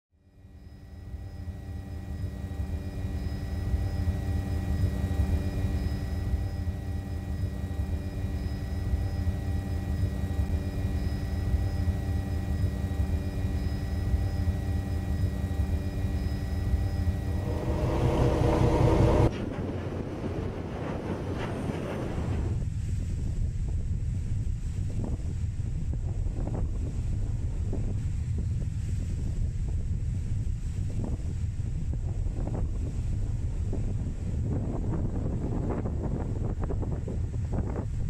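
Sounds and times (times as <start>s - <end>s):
high steady whine: 0.2s - 38.0s
low motor drone: 0.3s - 22.7s
rushing noise: 17.0s - 22.6s.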